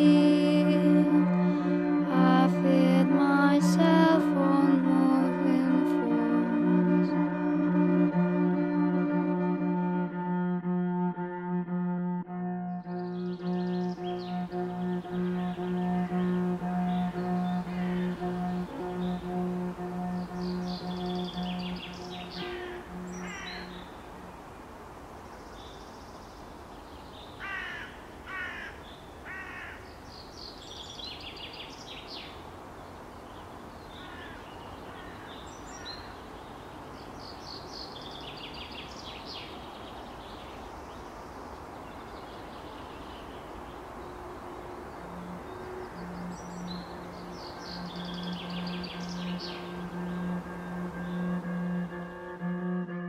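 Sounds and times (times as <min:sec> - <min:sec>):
bowed string drone: 0:00.0 - 0:24.4, 0:44.2 - 0:53.0
birds calling: 0:12.7 - 0:24.4, 0:27.2 - 0:52.3
outdoor hiss: 0:14.1 - 0:52.0.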